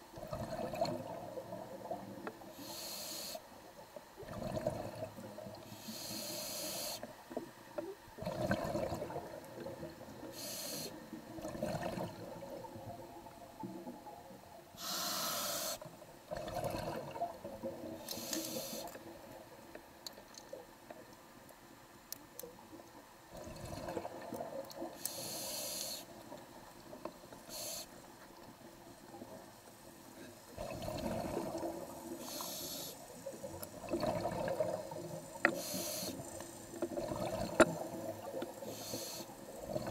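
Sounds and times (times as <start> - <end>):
diver breathing through a regulator: 2.4 - 3.5, 5.6 - 7.1, 10.2 - 11.0, 14.8 - 15.9, 18.0 - 19.0, 24.9 - 26.1, 27.5 - 28.0, 30.6 - 33.0, 35.5 - 36.4, 38.6 - 39.9.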